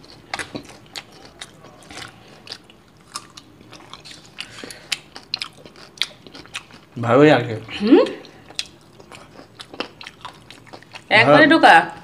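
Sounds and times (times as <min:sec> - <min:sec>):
small food crunches: 0:00.0 - 0:06.9
people chewing food: 0:00.0 - 0:12.0.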